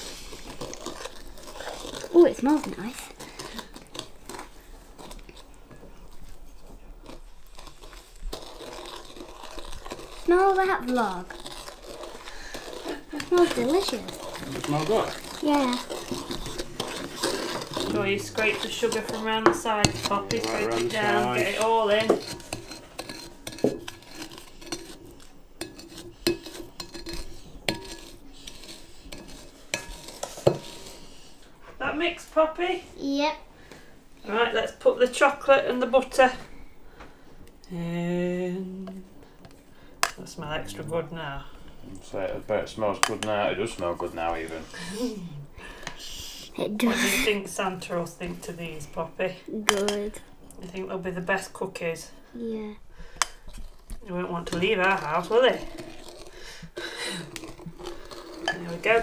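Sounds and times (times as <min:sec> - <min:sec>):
utensil scraping a mixing bowl: 0:00.0 - 0:32.6, 0:38.9 - 0:52.3, 0:53.0 - 0:59.0.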